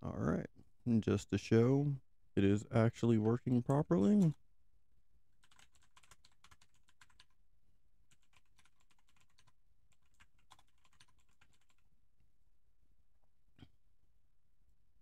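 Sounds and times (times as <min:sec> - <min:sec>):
faint keyboard typing: 0:03.0 - 0:04.4, 0:05.4 - 0:07.4, 0:08.1 - 0:11.9.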